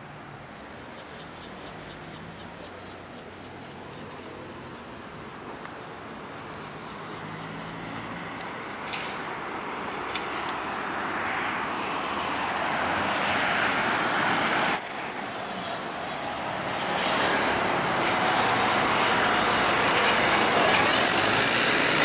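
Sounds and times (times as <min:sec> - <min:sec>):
passing cars and buses: 0:00.0 - 0:22.0
bus passing close: 0:06.2 - 0:22.0.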